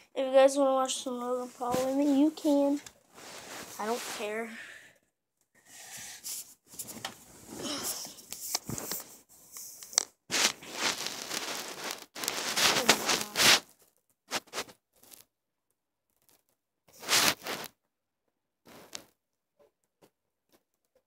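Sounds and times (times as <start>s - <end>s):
short crackles: 10.0s - 15.2s, 16.9s - 17.7s.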